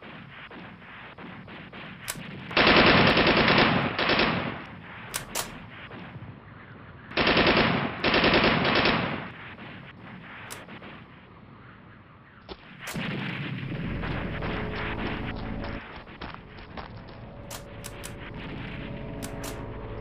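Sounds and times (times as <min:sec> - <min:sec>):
rapid automatic gunfire: 0:00.0 - 0:06.2, 0:07.1 - 0:10.7
sharp clicks: 0:04.6 - 0:05.8, 0:10.4 - 0:10.8, 0:17.4 - 0:19.9.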